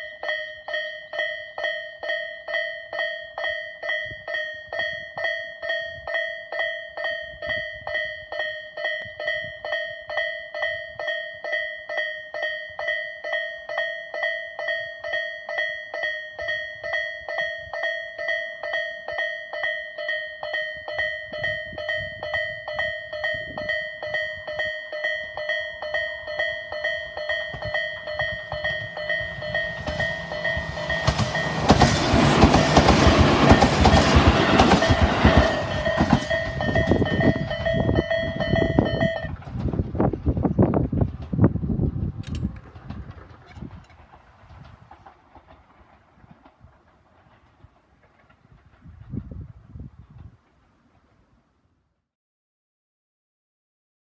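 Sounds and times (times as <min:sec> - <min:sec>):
level-crossing warning bell ringing: 0:00.0 - 0:39.4
electric train passing: 0:00.0 - 0:51.3.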